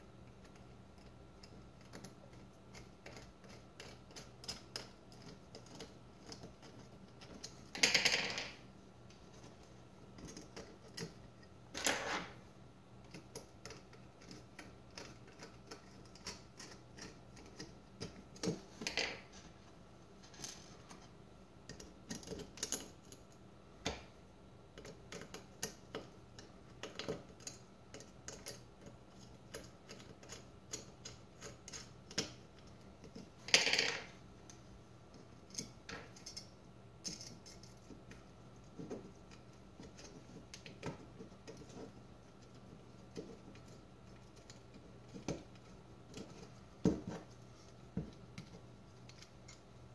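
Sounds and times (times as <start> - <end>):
small metal parts clicking: 35.5 - 38.2.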